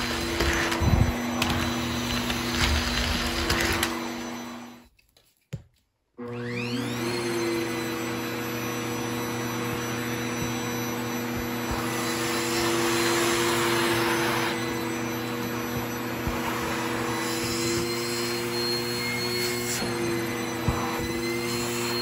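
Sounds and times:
vacuum cleaner running: 0.0s - 4.8s, 6.2s - 22.0s.

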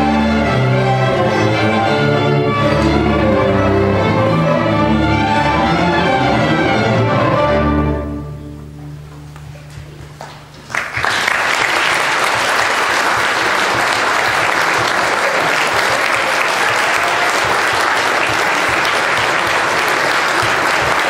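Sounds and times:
audience applause: 9.9s - 21.0s.

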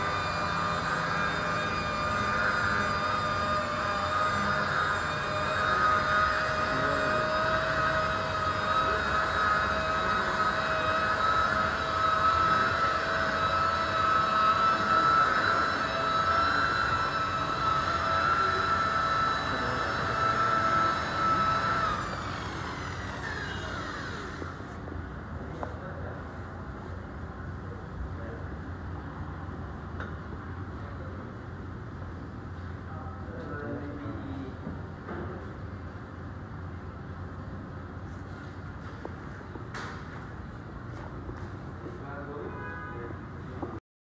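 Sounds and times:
electric polisher whining: 0.0s - 24.8s.

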